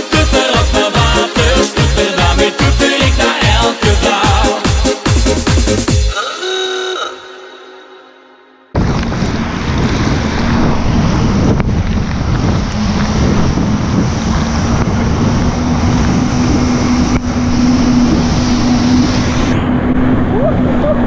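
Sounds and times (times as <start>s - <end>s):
jet ski engine hum: 0.0s - 21.0s
rushing spray: 8.8s - 21.0s
wind noise on microphone: 8.8s - 21.0s.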